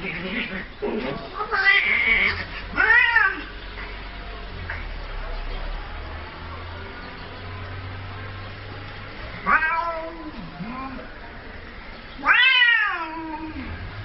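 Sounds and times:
cat meowing: 1.4s - 3.5s, 9.4s - 11.0s, 12.2s - 13.7s.

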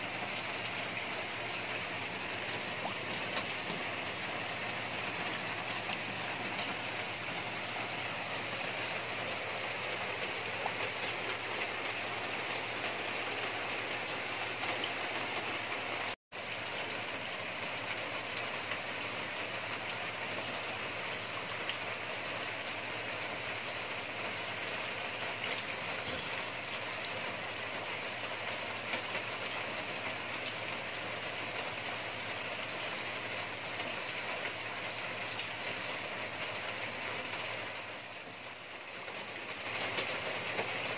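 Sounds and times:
water splashing into pond: 0.0s - 17.0s.

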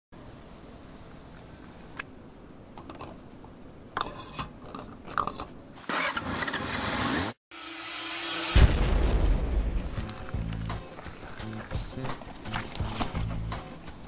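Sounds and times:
rising whoosh: 7.5s - 9.9s
boom: 8.2s - 10.0s.

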